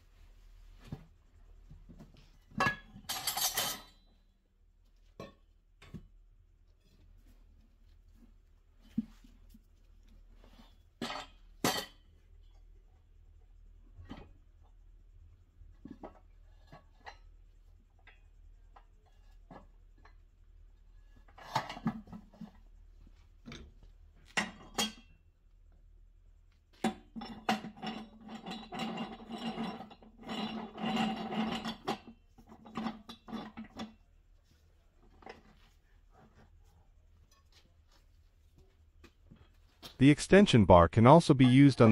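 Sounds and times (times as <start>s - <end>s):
light metal knocks and clinks: 2.4s - 4.3s.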